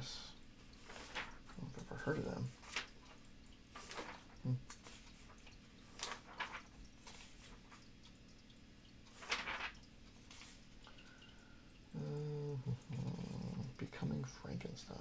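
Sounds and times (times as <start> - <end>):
pages turning: 0.7 - 7.9, 9.1 - 10.7.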